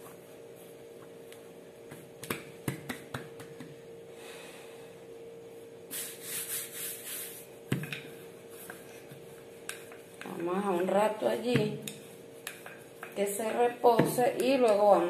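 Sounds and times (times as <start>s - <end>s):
rolling pin knocking onto dough: 10.2s - 13.2s, 13.8s - 14.9s.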